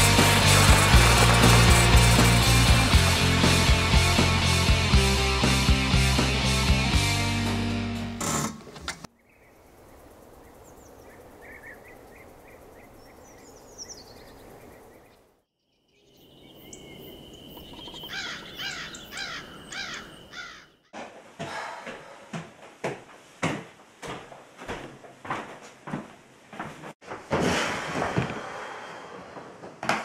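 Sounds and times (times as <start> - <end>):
bird chirps: 10.4 - 20.8
quick sweeping bird calls: 17.1 - 20.7.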